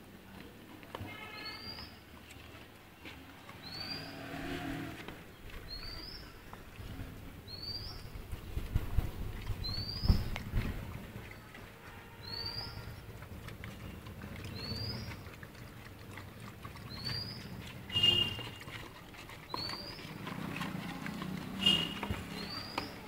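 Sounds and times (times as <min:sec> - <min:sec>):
bird chirping: 0:03.5 - 0:06.5, 0:07.5 - 0:08.1, 0:09.6 - 0:10.4, 0:12.2 - 0:13.1, 0:13.7 - 0:15.4, 0:16.7 - 0:18.6, 0:21.4 - 0:23.0
dogs scuffling while feeding: 0:05.0 - 0:23.0.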